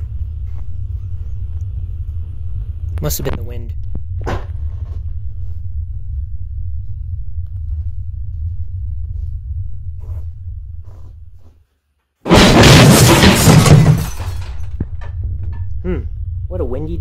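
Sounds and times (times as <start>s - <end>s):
low steady rumble: 0.0s - 17.0s
loud crash: 12.2s - 15.2s.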